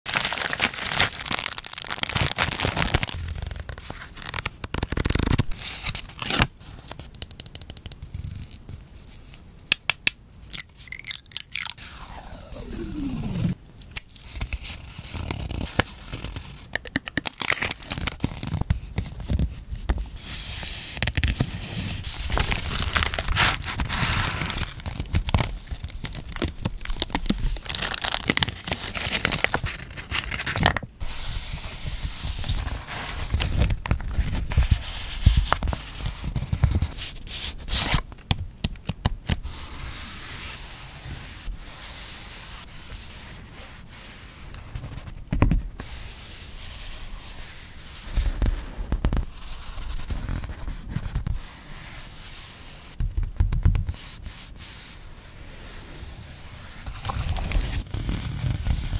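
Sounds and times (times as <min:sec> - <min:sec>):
tape and plastic crinkling: 0:00.1 - 0:08.6, 0:10.5 - 0:20.0, 0:20.9 - 0:30.9, 0:32.3 - 0:37.0, 0:56.8 - 0:58.9
fingertips rubbing paper: 0:17.6 - 0:30.4.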